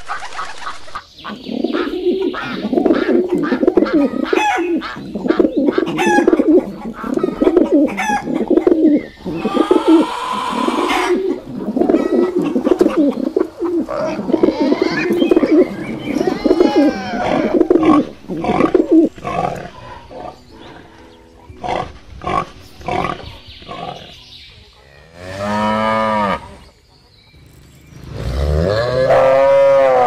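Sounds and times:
pigs grunting and squealing: 1.7s - 21.0s, 21.6s - 24.2s, 28.2s - 30.0s
cattle mooing: 24.8s - 26.6s.

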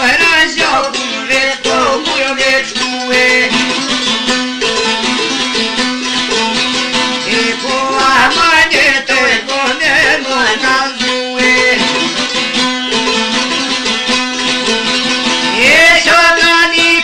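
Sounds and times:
person singing: 0.0s - 4.1s, 7.2s - 12.6s, 15.4s - 17.0s
plucked lute melody: 0.0s - 17.0s.

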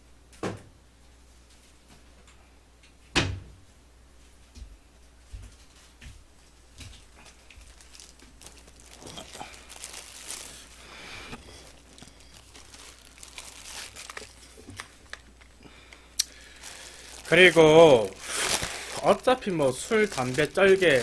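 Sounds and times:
plastic gloves crinkling: 5.6s - 21.0s.

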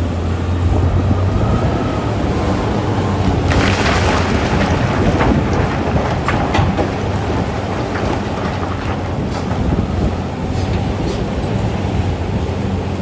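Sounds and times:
rocks rattling into steel truck bed: 3.4s - 11.3s.

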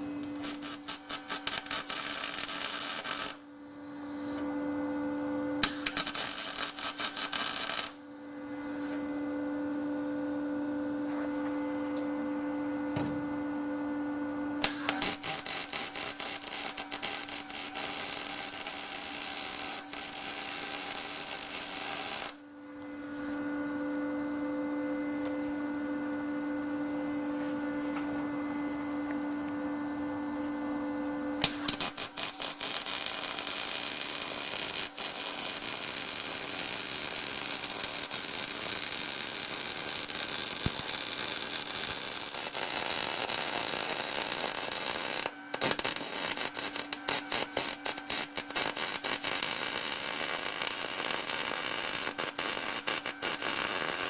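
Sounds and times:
welding arc crackling: 0.0s - 3.4s, 5.6s - 8.0s, 14.6s - 22.4s, 31.4s - 54.0s
steady hum: 0.0s - 39.0s.

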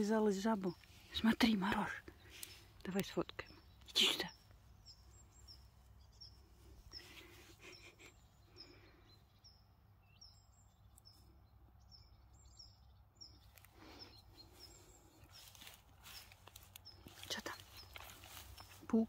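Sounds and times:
small bird chirping: 0.0s - 19.0s
soft rustles: 14.4s - 19.0s.

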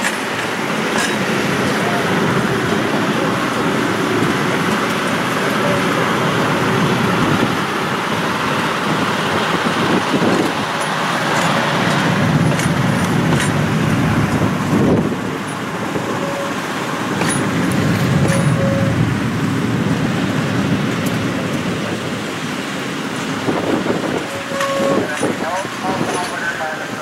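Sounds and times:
train wheels rumbling on rail: 0.0s - 27.0s.

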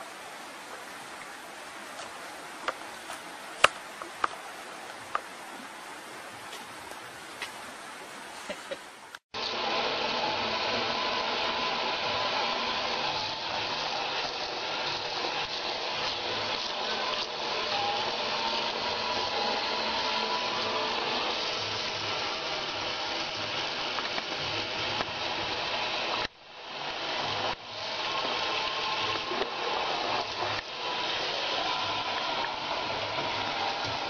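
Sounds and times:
faint steady hiss: 0.0s - 9.6s.

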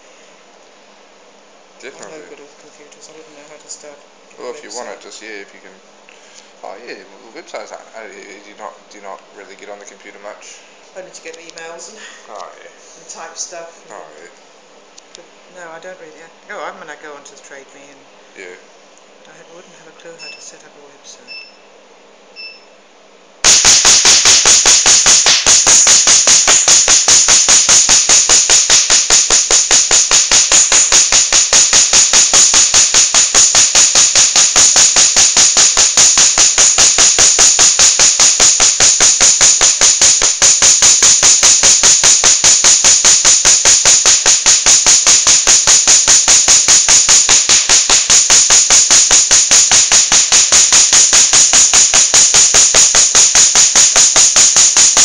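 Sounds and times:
faint beep: 22.4s - 22.8s
laser snapping clicks: 23.4s - 55.0s.

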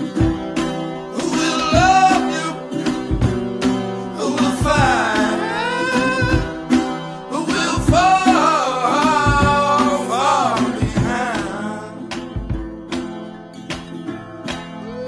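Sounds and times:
strummed acoustic guitar: 0.0s - 15.0s
person singing: 1.1s - 3.3s, 4.0s - 12.2s, 14.8s - 15.0s.

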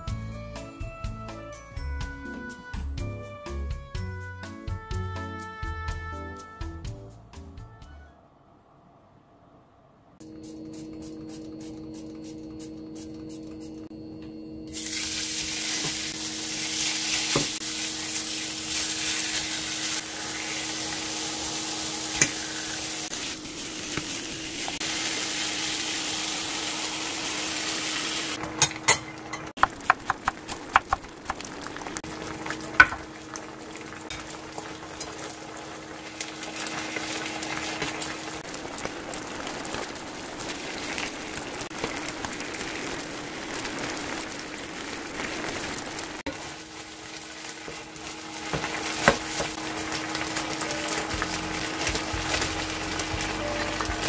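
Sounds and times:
meat sizzling in a frying pan: 14.7s - 28.7s, 29.6s - 54.0s
sauce poured into hot pan: 14.8s - 28.4s, 30.3s - 54.0s.

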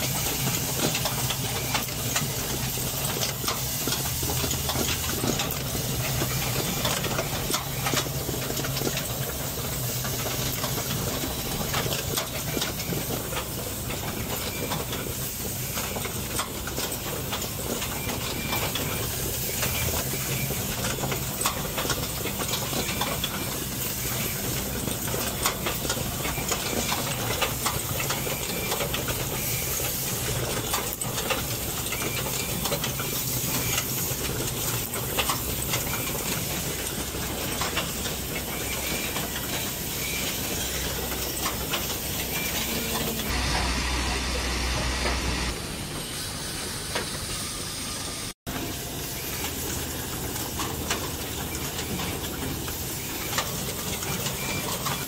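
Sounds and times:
low machine hum: 23.6s - 46.7s.

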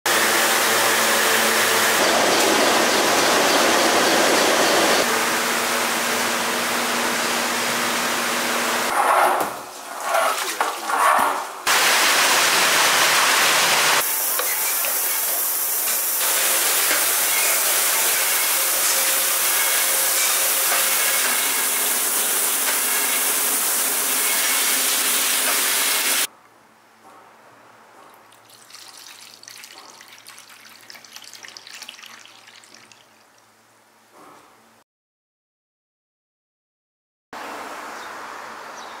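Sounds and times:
loud rushing hiss: 0.1s - 6.0s, 11.7s - 26.3s
liquid splashing into metal bowl: 28.3s - 33.2s.

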